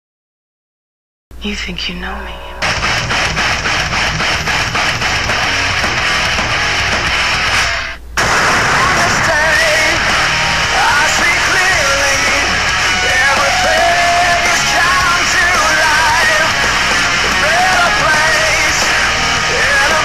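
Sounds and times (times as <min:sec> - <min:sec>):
loud rock band: 0:02.6 - 0:20.0
shouted vocals: 0:08.8 - 0:20.0.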